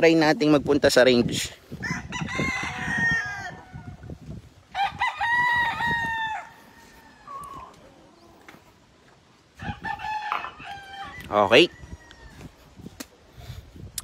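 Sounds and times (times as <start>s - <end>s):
rooster crowing: 1.8s - 4.0s, 4.7s - 7.7s, 9.6s - 12.6s.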